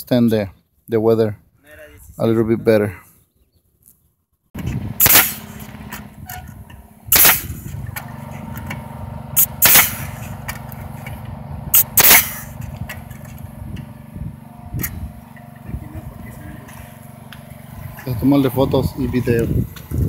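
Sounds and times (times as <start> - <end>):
nail gun firing: 4.6 - 6.4, 7.1 - 8.8, 9.4 - 10.8, 11.7 - 13.4
steady low hum: 4.6 - 20.0.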